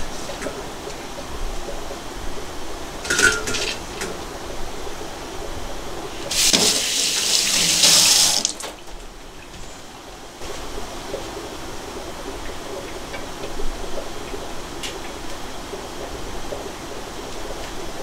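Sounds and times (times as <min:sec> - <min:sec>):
tap running into a sink: 0:06.3 - 0:08.8.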